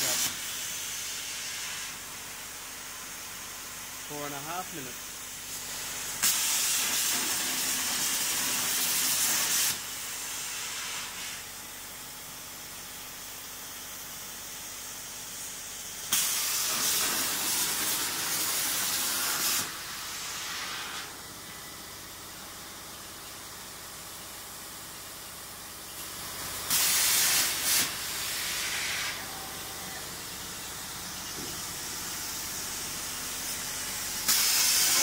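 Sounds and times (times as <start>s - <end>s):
plasma cutter arc hissing: 0.0s - 11.6s, 15.2s - 21.3s, 26.0s - 35.0s.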